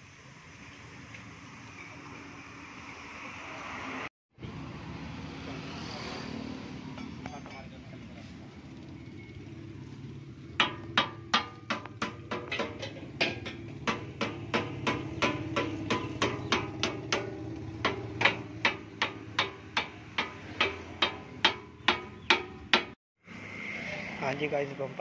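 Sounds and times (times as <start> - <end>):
hammer blows on metal: 10.6 - 23.0.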